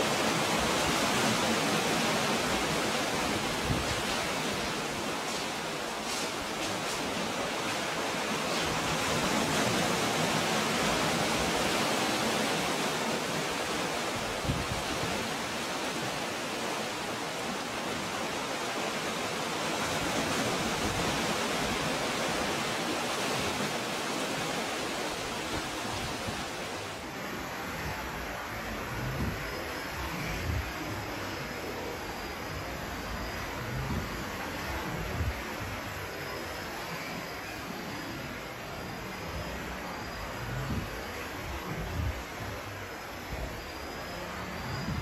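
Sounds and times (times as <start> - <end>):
water washing over rocks: 0.0 - 27.1.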